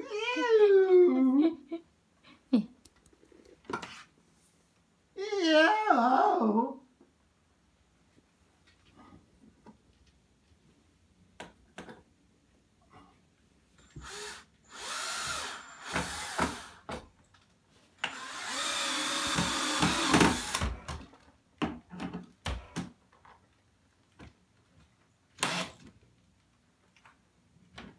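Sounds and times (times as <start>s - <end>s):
cordless drill driving screws: 13.9s - 16.9s, 18.0s - 20.8s, 25.4s - 25.9s.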